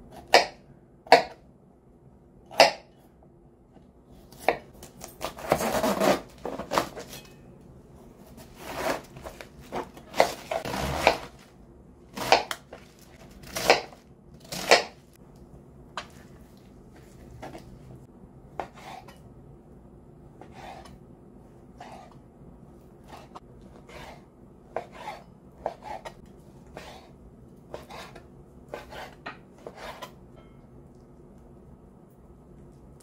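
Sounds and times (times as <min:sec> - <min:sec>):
knife cutting vegetables: 0:04.3 - 0:07.3, 0:08.2 - 0:11.5, 0:12.1 - 0:15.0, 0:24.8 - 0:27.1, 0:27.7 - 0:30.2.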